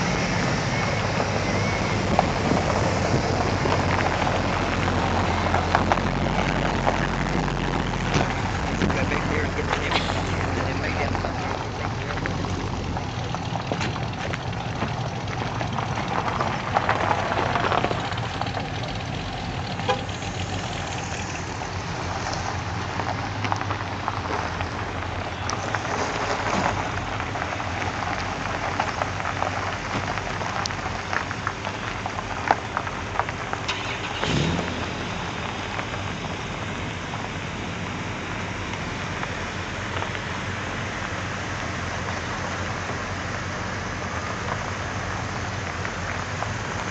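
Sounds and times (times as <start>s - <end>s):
engine revving: 0.0s - 24.8s, 33.6s - 36.4s
car engines at low revs: 0.0s - 46.9s
tyres crunching on gravel: 0.0s - 46.9s.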